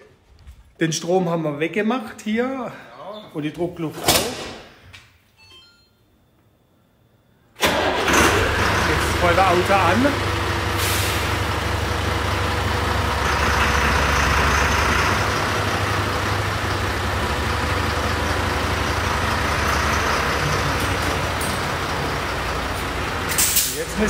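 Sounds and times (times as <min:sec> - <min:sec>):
diesel engine idling: 0:07.6 - 0:24.0
hiss: 0:10.7 - 0:11.4.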